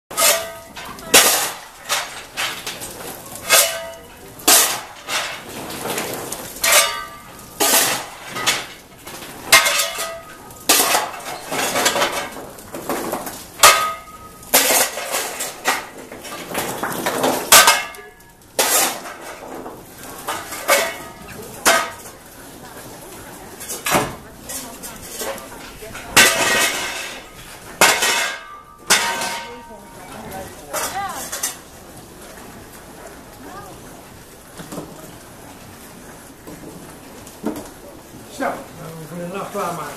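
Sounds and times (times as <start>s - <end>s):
metallic clangs: 0.1s - 19.6s, 23.6s - 31.7s
coal lumps clattering: 0.1s - 39.9s
shovel scraping into coal: 18.6s - 19.3s.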